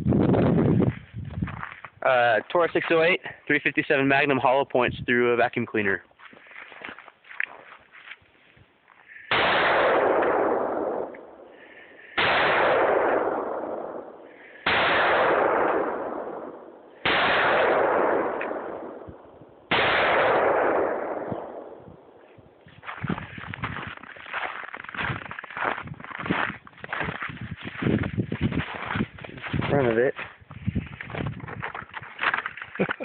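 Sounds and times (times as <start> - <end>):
revolver gunshots ringing: 9.3 - 11.5, 12.2 - 21.9.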